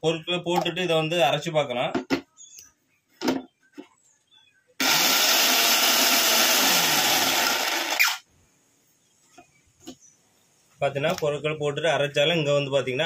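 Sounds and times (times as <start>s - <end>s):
mixer grinder motor running: 4.8s - 8.2s
motor spinning down whine: 4.8s - 8.2s.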